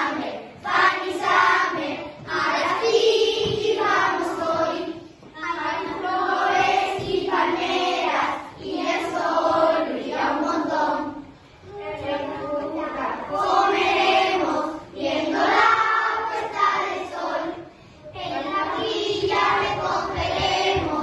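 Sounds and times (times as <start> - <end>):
children singing in unison: 0.0 - 21.0.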